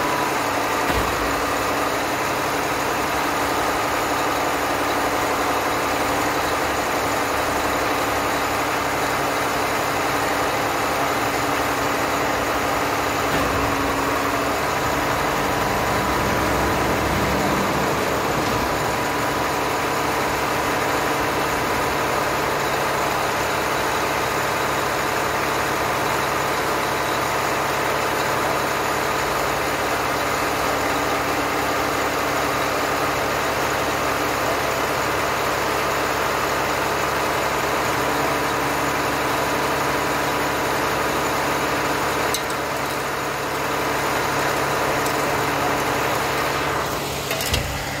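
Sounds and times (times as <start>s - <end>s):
diesel engine running: 0.0s - 48.0s.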